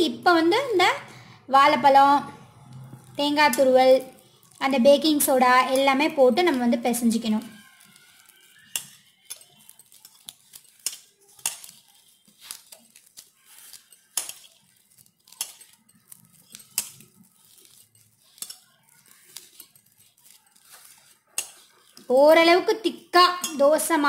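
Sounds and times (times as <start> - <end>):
bangles clinking on steel bowl: 3.0 - 24.0.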